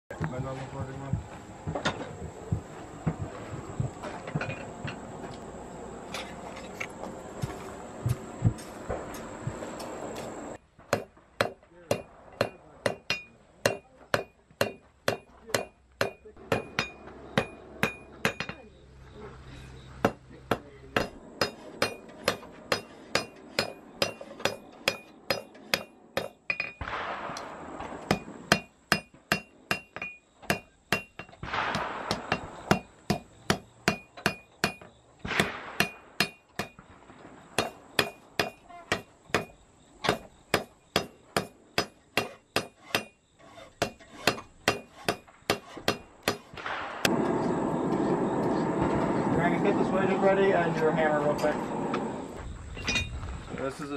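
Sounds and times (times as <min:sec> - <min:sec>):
hammer striking metal on anvil: 0:10.9 - 0:18.6, 0:20.0 - 0:26.8, 0:28.1 - 0:31.4, 0:32.1 - 0:34.9, 0:35.8 - 0:36.8, 0:37.6 - 0:43.2, 0:43.8 - 0:46.4.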